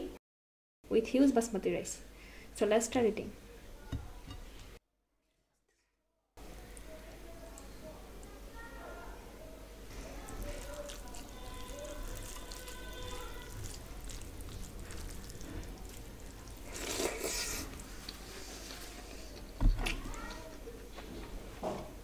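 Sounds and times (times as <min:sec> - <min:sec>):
hand mixing rice squishing: 0:09.8 - 0:19.4
eating sounds: 0:09.9 - 0:20.4.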